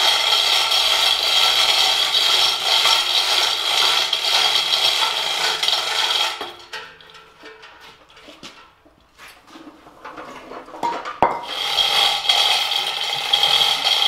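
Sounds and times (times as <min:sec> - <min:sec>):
chain hoist rattling: 0:00.0 - 0:07.2, 0:11.4 - 0:14.0.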